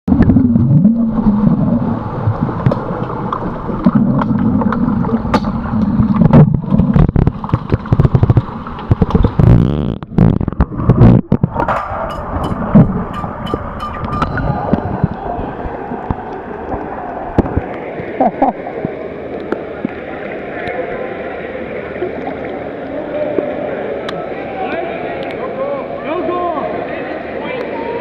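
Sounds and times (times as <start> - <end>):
underwater churning rumble: 0.0 - 20.6
underwater clicks and knocks: 2.5 - 18.2.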